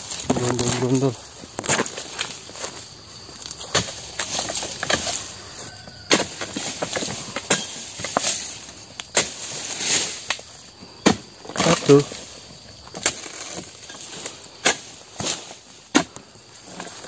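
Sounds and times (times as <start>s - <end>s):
palm fronds rustling and scraping: 0.0s - 17.0s
chisel chopping palm stalks: 3.4s - 12.3s, 12.9s - 17.0s.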